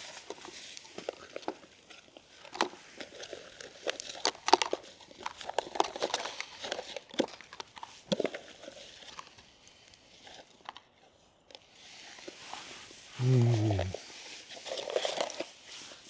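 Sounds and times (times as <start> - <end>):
paper packaging crinkling: 14.3 - 16.0.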